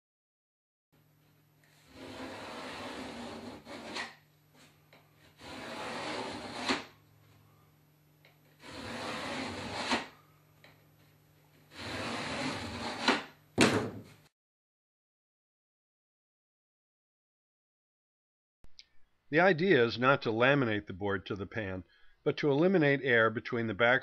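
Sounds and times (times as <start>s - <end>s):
trowel scraping thinset on board: 1.9s - 4.2s, 5.3s - 6.9s, 8.6s - 10.2s, 11.7s - 13.3s.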